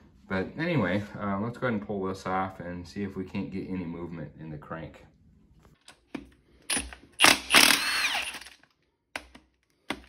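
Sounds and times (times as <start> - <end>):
cordless ratchet motor whine: 7.2 - 8.6.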